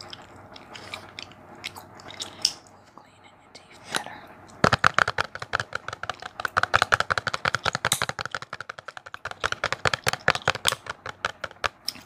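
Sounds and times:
fingernails tapping on cardboard box: 4.6 - 11.7.

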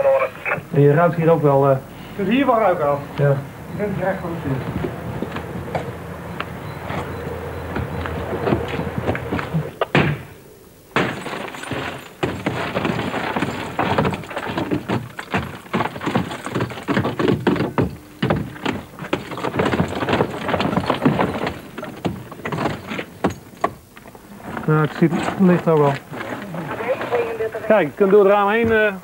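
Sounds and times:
rustling: 3.7 - 29.0
scuffing footsteps: 3.9 - 10.3, 11.0 - 24.2
clatter of knocks and rattles: 10.9 - 27.3.

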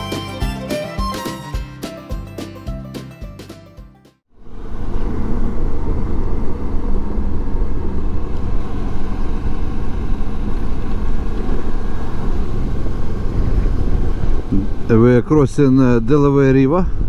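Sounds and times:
motorcycle engine rumble: 4.3 - 15.1.

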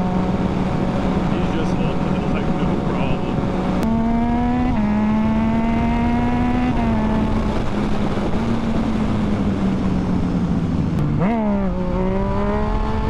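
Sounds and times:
riding wind noise: 0.0 - 13.0.

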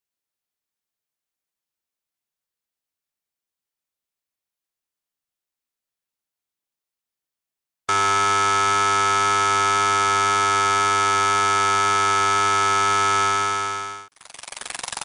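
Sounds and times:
long steady buzzer: 7.9 - 14.1.

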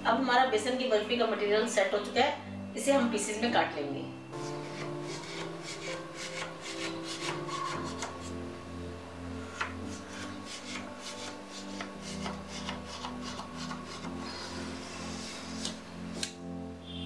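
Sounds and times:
knife scraping on steel plate: 4.4 - 8.4.

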